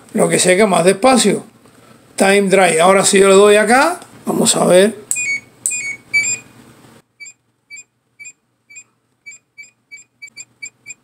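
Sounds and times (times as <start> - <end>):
control panel beeps: 5.1 - 6.5, 7.2 - 11.0.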